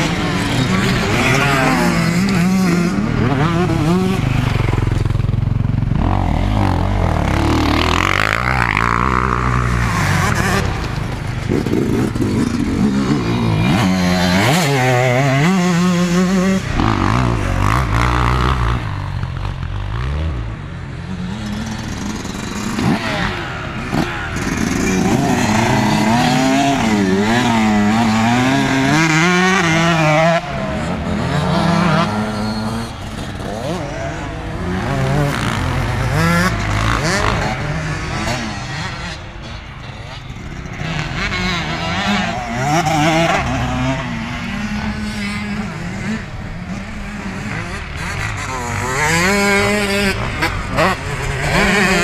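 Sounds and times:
motorbike engine revving: 0.0 - 52.0.

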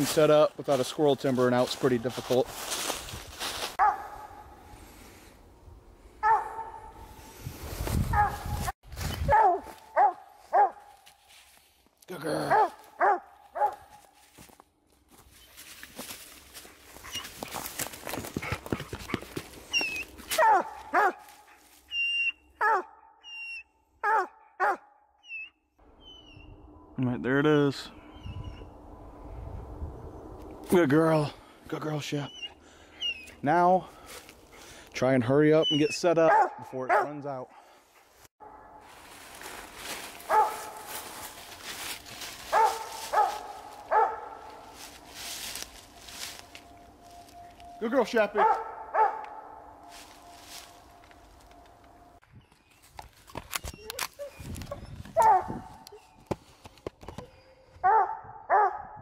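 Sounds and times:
rustling in dry leaves: 0.0 - 5.2, 7.0 - 18.4, 19.5 - 22.0, 38.0 - 48.3, 49.7 - 51.7
dog barking: 3.8 - 4.5, 6.2 - 7.1, 8.1 - 8.5, 9.3 - 11.0, 12.5 - 14.0, 20.3 - 21.3, 22.6 - 23.2, 24.0 - 25.0, 36.3 - 37.2, 40.3 - 40.8, 42.5 - 44.6, 48.4 - 49.6, 55.2 - 55.7, 57.8 - 59.0
dog high squeals: 19.7 - 20.6, 21.9 - 24.3, 53.6 - 55.4.

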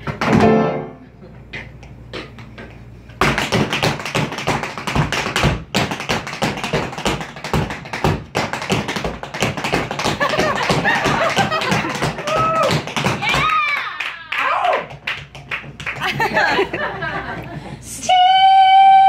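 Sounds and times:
tap shoes on wooden stage: 0.0 - 0.6, 1.4 - 13.9, 14.6 - 16.7.

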